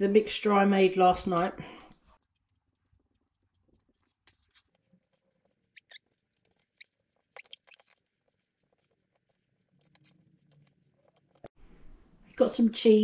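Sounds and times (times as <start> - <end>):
spoon scraping thick stew: 2.2 - 7.4, 8.0 - 11.5.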